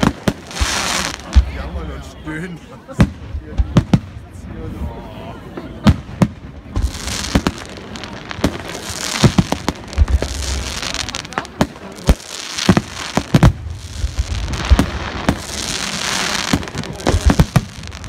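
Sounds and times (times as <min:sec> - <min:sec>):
firework hiss: 0:00.0 - 0:01.6, 0:06.7 - 0:18.0.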